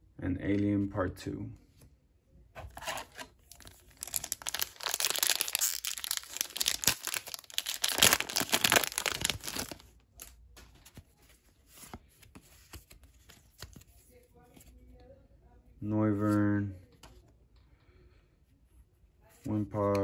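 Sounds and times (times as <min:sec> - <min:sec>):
cards rustling: 0:02.6 - 0:14.8
foil pack crinkling and tearing: 0:02.8 - 0:10.3.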